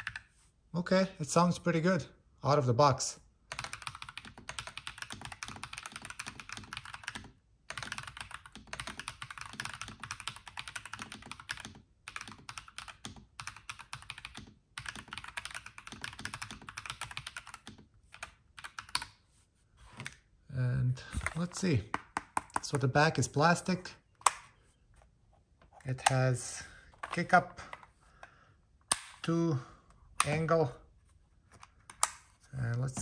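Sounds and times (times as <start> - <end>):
mechanical keyboard typing: 0.0 - 0.2, 3.5 - 19.1.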